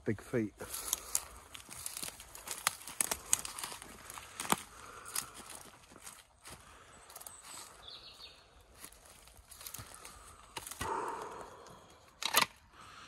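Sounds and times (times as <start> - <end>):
footsteps crunching through dry leaves: 0.6 - 10.8.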